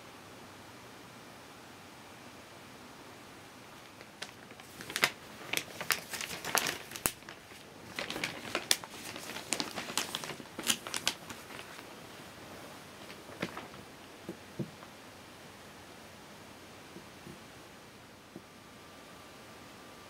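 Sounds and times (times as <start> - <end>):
newspaper crinkling: 3.8 - 14.1.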